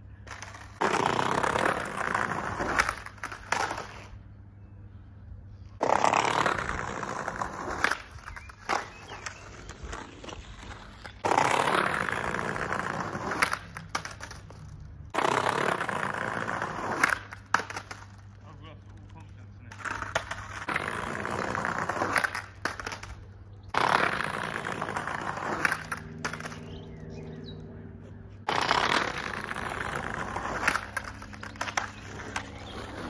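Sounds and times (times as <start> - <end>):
skateboard clacking on curb: 0.2 - 4.1, 5.8 - 26.8, 28.4 - 33.0
skateboard rolling on tarmac: 0.2 - 4.5, 5.7 - 33.0.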